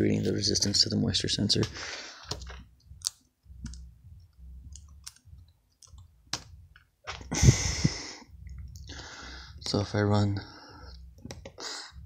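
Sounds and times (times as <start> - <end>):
low hum: 2.5 - 9.6.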